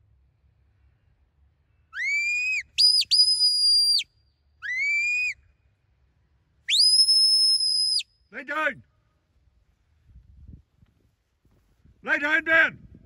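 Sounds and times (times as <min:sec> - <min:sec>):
shepherd's whistle commands: 0:02.0 - 0:04.0, 0:04.6 - 0:05.4, 0:06.7 - 0:08.1.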